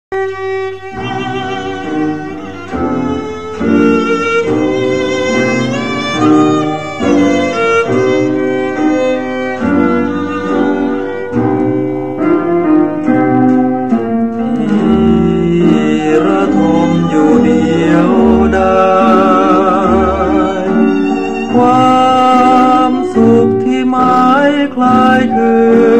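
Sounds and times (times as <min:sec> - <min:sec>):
bass notes: 0:00.1 - 0:05.5
string section melody: 0:00.1 - 0:25.9.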